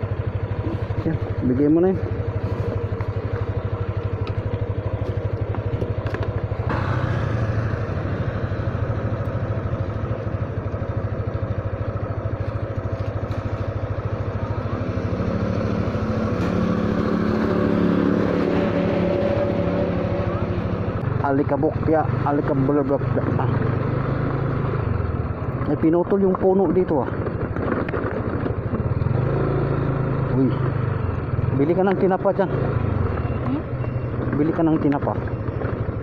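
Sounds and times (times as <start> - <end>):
higher engine note: 0.0 - 11.4, 12.2 - 24.8
scooter engine idling: 0.0 - 23.0, 30.3 - 36.0.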